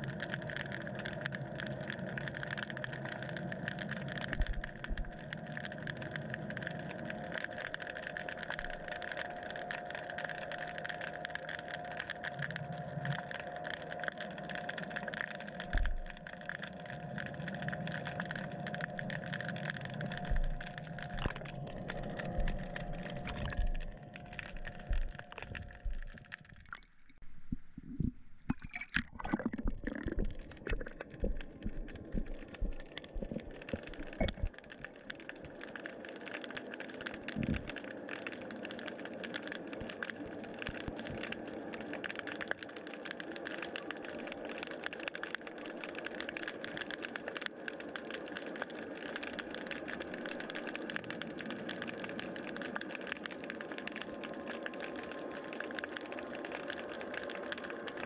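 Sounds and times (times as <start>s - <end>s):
crackling hiss: 0.0s - 58.0s
underwater mechanical hum: 0.0s - 58.0s
low knocks and clicks: 23.2s - 34.6s.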